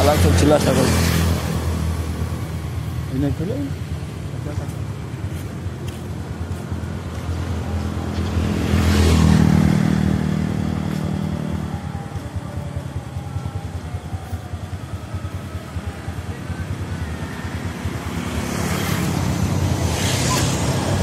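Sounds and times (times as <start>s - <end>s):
vehicle passing by: 0.0s - 3.8s, 4.4s - 13.2s, 14.9s - 21.0s.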